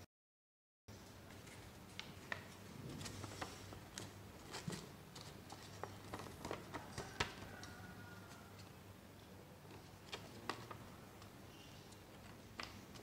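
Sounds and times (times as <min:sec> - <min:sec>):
faint steady hum: 0:00.9 - 0:13.0
paper crackling and tapping: 0:01.3 - 0:07.8, 0:09.7 - 0:11.4, 0:12.0 - 0:13.0.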